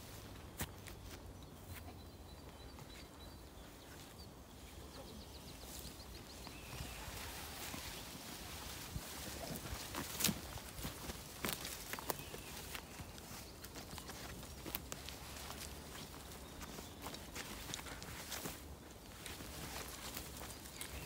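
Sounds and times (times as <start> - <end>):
faint bird singing: 0.1 - 21.0
footsteps crackling twigs: 5.4 - 21.0.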